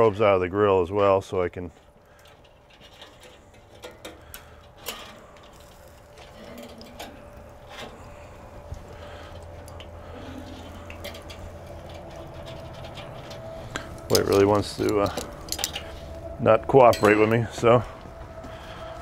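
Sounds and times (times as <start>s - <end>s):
low steady hum: 0.0s - 19.0s
faint clicks and metallic ticks: 1.8s - 8.0s, 8.7s - 16.2s.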